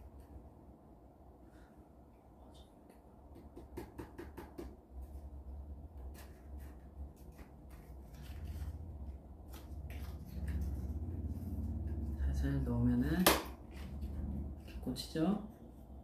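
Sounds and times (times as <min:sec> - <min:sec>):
low rumble: 0:08.2 - 0:15.0.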